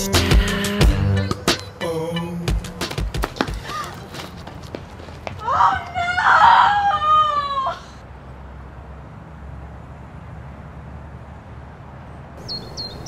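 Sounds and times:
low outdoor street rumble: 0:00.0 - 0:13.0
woman cheering: 0:03.6 - 0:04.1, 0:05.4 - 0:08.0
high bird chirps: 0:12.4 - 0:13.0.

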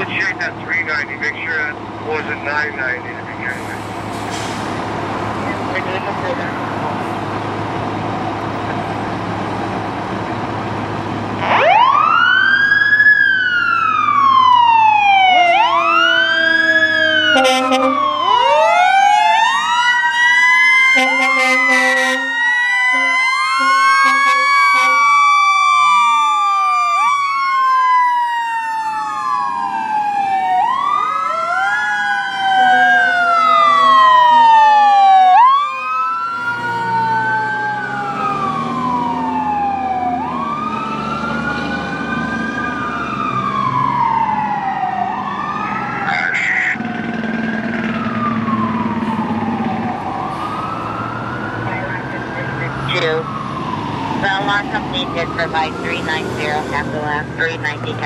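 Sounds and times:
diesel engines rumbling: 0:00.0 - 0:58.0
air horn blasts: 0:17.3 - 0:18.0, 0:21.0 - 0:25.0.

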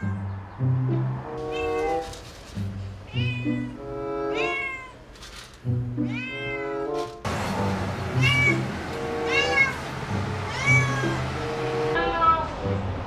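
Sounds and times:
cat meowing: 0:00.0 - 0:00.3, 0:01.4 - 0:02.1, 0:03.1 - 0:05.0, 0:06.0 - 0:07.0, 0:08.1 - 0:11.3
background music with low notes: 0:00.0 - 0:04.8, 0:05.6 - 0:13.0.

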